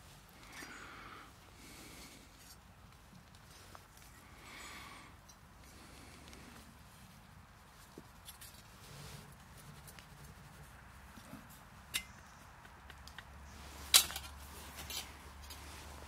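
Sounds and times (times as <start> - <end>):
metal parts scraping: 13.8 - 15.1.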